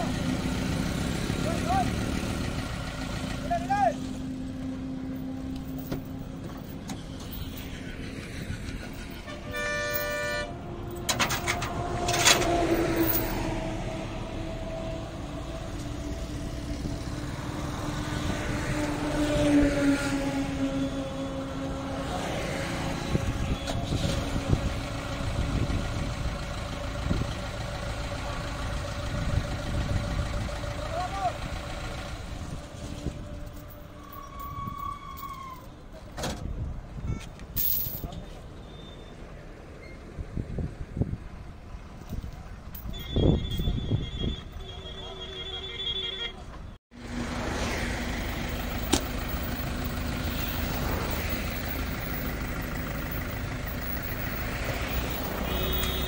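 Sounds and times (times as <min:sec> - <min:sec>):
traffic noise: 0:00.0 - 0:56.0
vehicle engine hum: 0:00.0 - 0:56.0
vehicle horn: 0:08.9 - 0:12.4, 0:42.9 - 0:46.5, 0:55.4 - 0:56.0.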